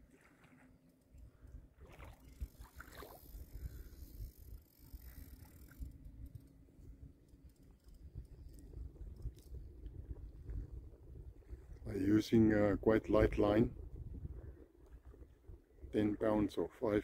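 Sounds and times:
wind rumbling on microphone: 1.3s - 17.0s
rippling water: 1.7s - 6.1s.

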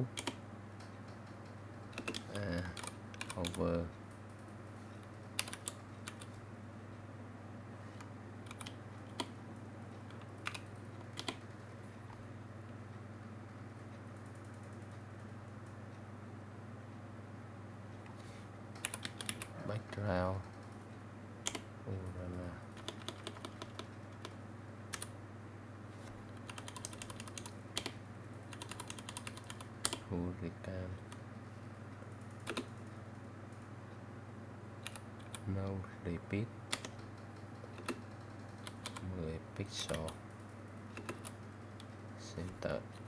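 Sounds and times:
steady low hum: 0.0s - 43.0s
keyboard keystrokes clicking: 0.1s - 3.6s, 5.4s - 6.4s, 8.5s - 9.4s, 10.1s - 11.4s, 18.8s - 19.5s, 21.4s - 21.6s, 22.8s - 25.1s, 26.4s - 30.0s, 32.4s - 32.7s, 34.8s - 35.4s, 36.7s - 39.1s, 40.9s - 41.9s.

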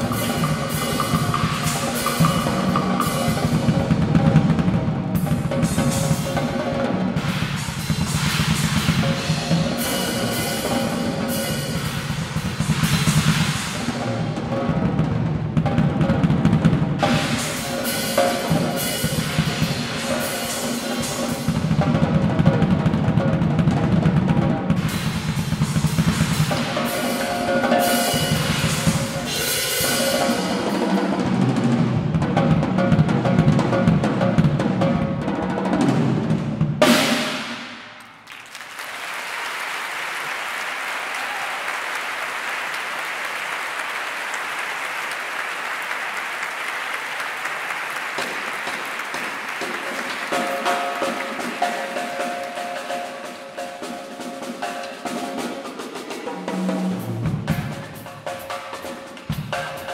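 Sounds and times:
drum kit solo: 0.0s - 37.8s, 48.2s - 59.9s
audience applause: 38.0s - 53.0s.

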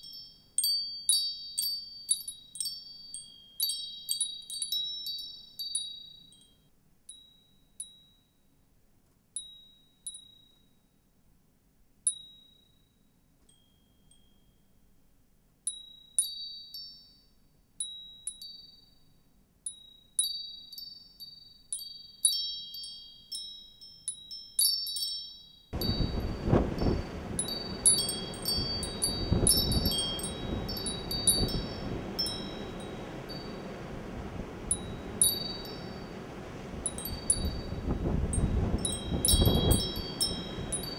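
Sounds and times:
wind chimes tinkling: 0.0s - 7.5s, 16.2s - 17.3s, 20.2s - 40.9s
rushing wind and storm noise: 25.8s - 40.9s.

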